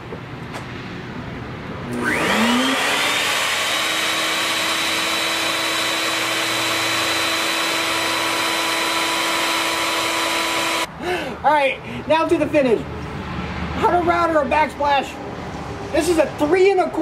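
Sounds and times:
electric router motor whine: 0:01.9 - 0:10.9.

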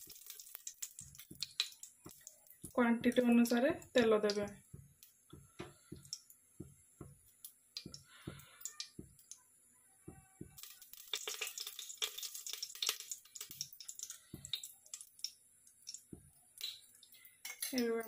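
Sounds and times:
hot oil crackling: 0:00.0 - 0:09.4, 0:10.5 - 0:18.0
oil drips and soft knocks: 0:00.0 - 0:09.4, 0:10.1 - 0:17.6.

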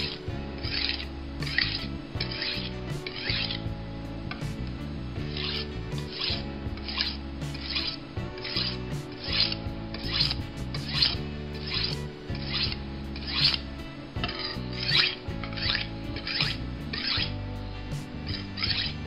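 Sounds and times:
background music: 0:00.0 - 0:19.0
knife scraping on sharpening stone: 0:05.3 - 0:13.7.

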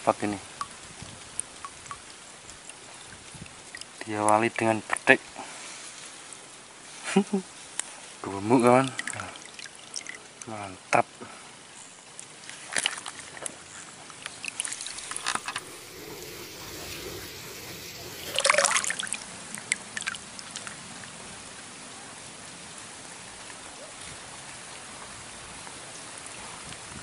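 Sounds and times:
water splashing: 0:14.4 - 0:20.7
steady hiss: 0:14.7 - 0:19.7.

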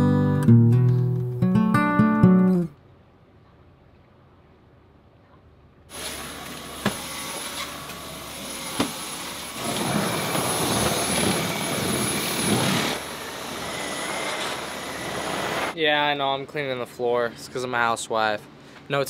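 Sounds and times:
stick vacuum cleaner motor whine: 0:05.9 - 0:15.8.

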